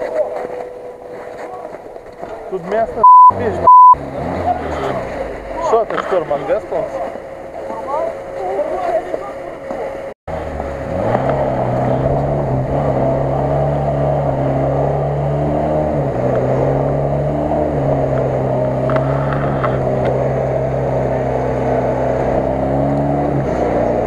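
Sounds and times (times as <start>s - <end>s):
engine revving high: 3.0s - 6.3s, 10.3s - 24.0s.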